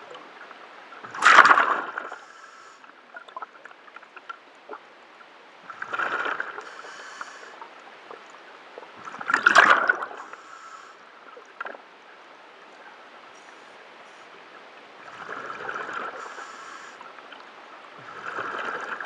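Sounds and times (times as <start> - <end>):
regulator hiss: 2.1 - 2.9, 6.6 - 7.6, 10.2 - 11.0, 16.2 - 17.0
gurgling exhaled bubbles: 5.7 - 6.7, 15.0 - 16.4, 18.0 - 19.0.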